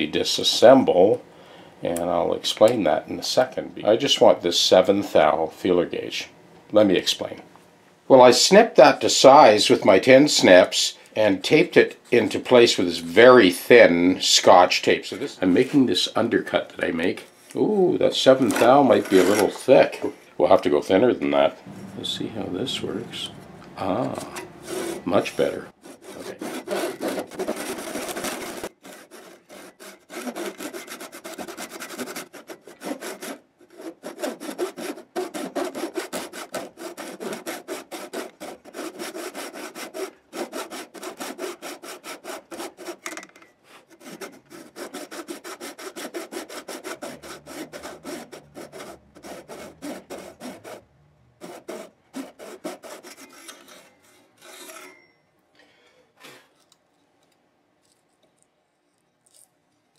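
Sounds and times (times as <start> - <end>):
hand saw cutting wood: 18.3 - 20.0, 23.8 - 43.2, 43.8 - 55.0.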